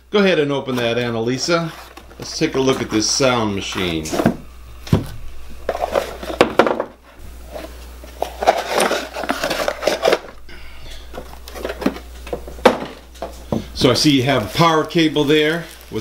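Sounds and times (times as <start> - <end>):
plastic wrapping rustling: 5.1 - 6.6, 7.4 - 10.4, 11.1 - 16.0.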